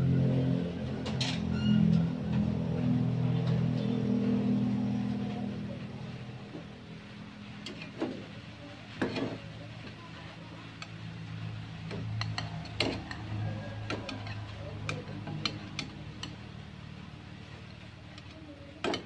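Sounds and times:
spatula clicking on frying pan: 0:11.8 - 0:16.4.

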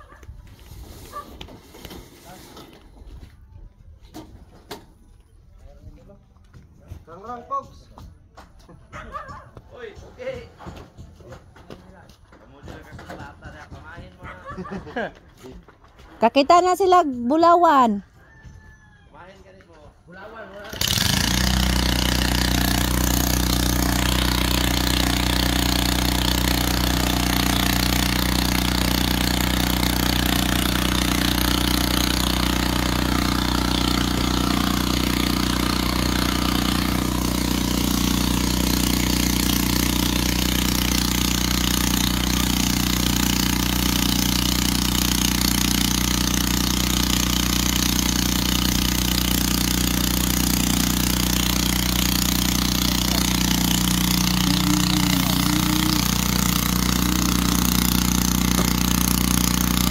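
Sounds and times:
engine running steadily: 0:20.6 - 0:59.9.

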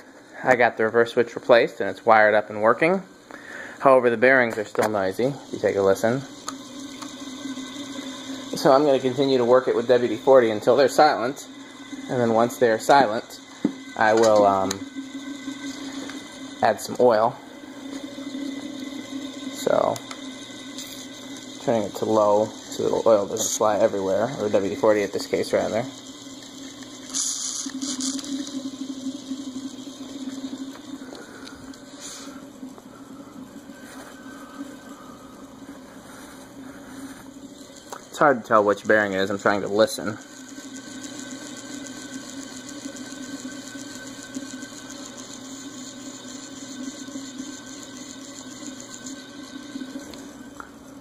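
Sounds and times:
ceiling fan motor hum: 0:00.0 - 0:51.0
noisy fan bearings: 0:00.0 - 0:51.0
spray can hissing: 0:27.1 - 0:28.4.

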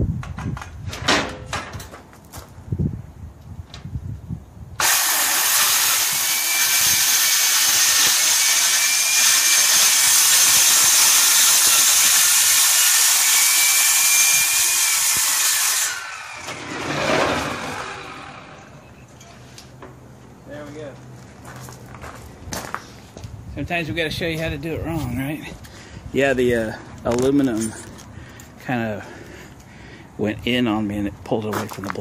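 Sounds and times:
circular saw cutting metal: 0:04.8 - 0:18.8.

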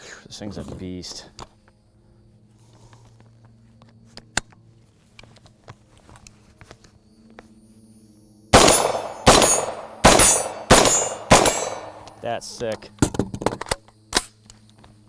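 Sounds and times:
suppressed shotgun shots: 0:08.6 - 0:12.2.

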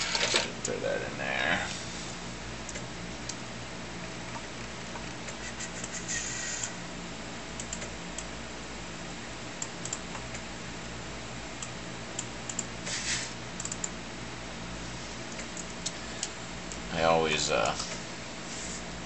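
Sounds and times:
computer humming: 0:00.0 - 0:19.0
short scraping hisses: 0:05.4 - 0:06.7, 0:12.8 - 0:13.4.

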